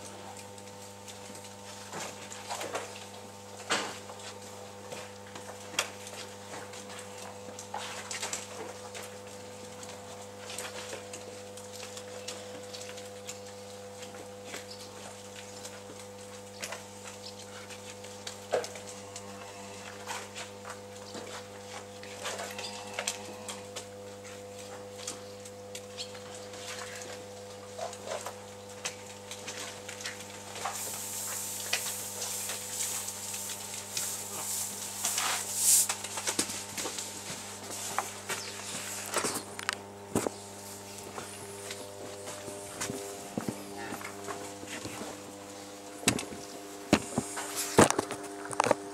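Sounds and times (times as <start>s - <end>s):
steady low hum: 0.0s - 48.9s
feed granules pouring onto hay: 30.6s - 36.0s.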